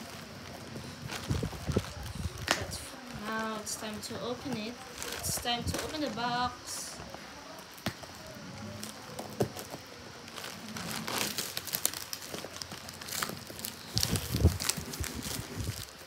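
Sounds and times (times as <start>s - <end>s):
plastic wrap crinkling: 0.0s - 16.0s.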